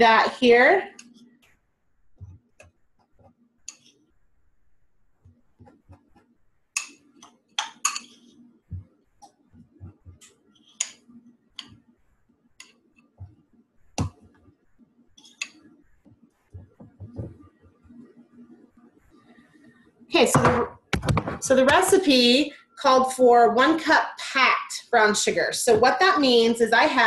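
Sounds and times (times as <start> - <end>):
spoon clicking and scraping: 3.6 - 4.0, 6.8 - 8.4, 10.2 - 11.8, 15.2 - 15.6.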